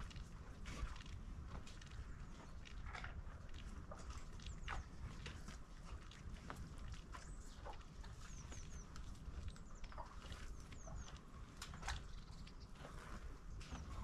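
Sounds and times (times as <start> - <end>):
faint footsteps: 0.0 - 14.0
small bird chirping: 7.2 - 12.8.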